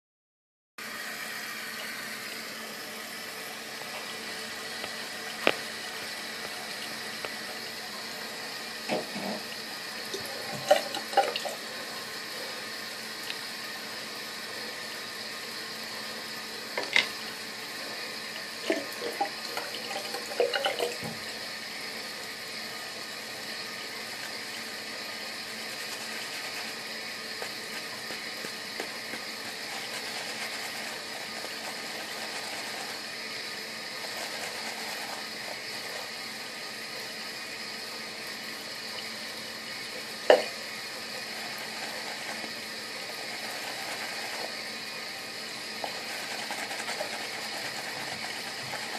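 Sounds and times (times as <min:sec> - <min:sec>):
shaving brush lathering: 0:16.6 - 0:48.9.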